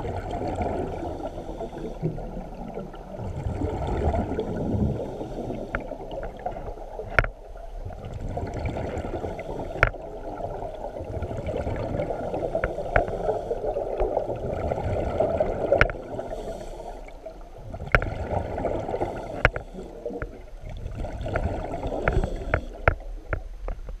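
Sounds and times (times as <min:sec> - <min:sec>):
underwater churning rumble: 0:00.0 - 0:24.0.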